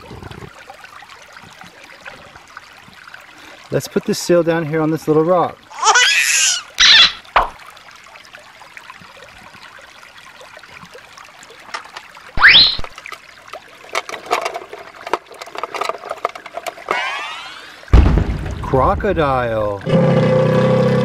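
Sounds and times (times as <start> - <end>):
stream trickling over stones: 0.0 - 21.0
sudden loud sound rising in pitch: 16.9 - 18.2.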